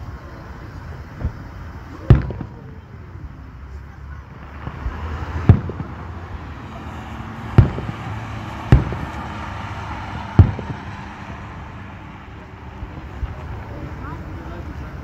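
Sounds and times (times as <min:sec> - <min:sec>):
low background noise: 0:00.0 - 0:15.0
firework shells bursting: 0:02.0 - 0:02.8, 0:04.4 - 0:11.4.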